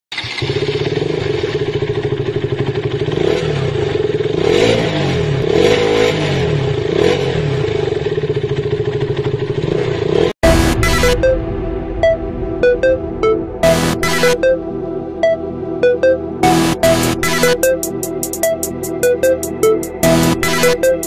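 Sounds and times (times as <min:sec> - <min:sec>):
motorcycle engine revving: 0:00.1 - 0:10.7, 0:16.4 - 0:21.0.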